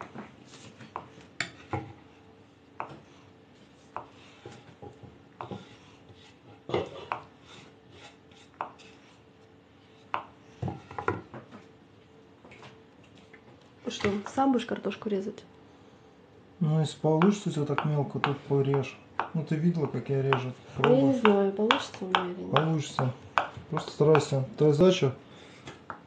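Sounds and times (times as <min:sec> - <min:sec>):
knife chopping on wooden board: 0:02.8 - 0:03.1, 0:03.9 - 0:09.1, 0:10.0 - 0:11.5, 0:17.2 - 0:24.4.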